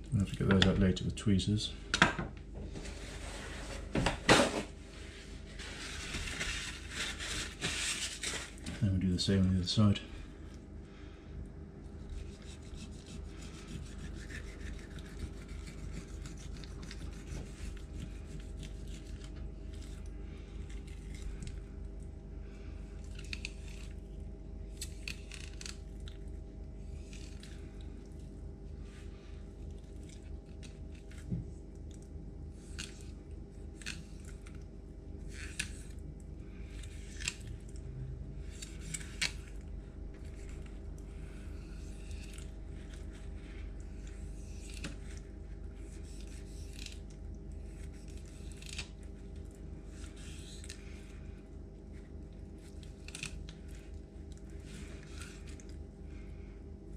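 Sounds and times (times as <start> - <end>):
steady low hum: 0.0 - 56.9
knife scraping and slicing fish: 12.0 - 20.0, 44.0 - 49.0.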